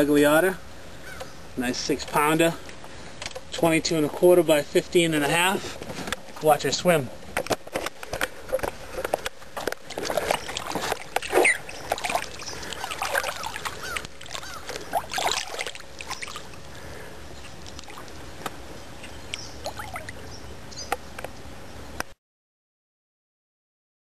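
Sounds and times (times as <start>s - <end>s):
water splashing and sloshing: 8.5s - 18.6s, 19.3s - 20.2s.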